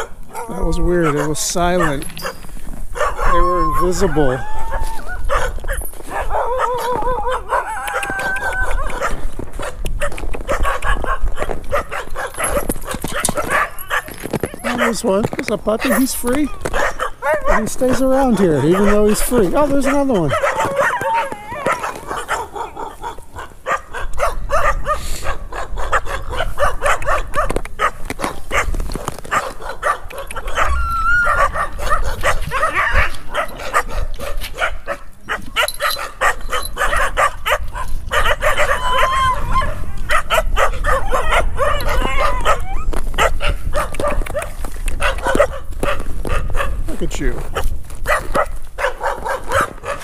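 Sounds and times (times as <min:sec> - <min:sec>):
many dogs barking: 0:00.0 - 0:50.0
dog whining: 0:03.0 - 0:09.1, 0:20.2 - 0:23.0, 0:30.4 - 0:31.7, 0:38.4 - 0:39.8, 0:40.9 - 0:43.0.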